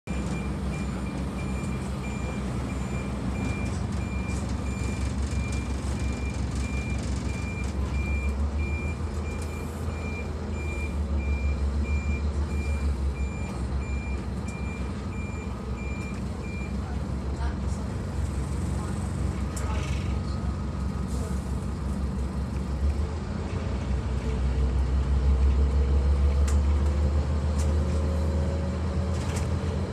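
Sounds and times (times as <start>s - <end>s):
diesel bus engine rumble: 0.0s - 29.9s
bus reversing alarm beeping: 0.1s - 17.0s.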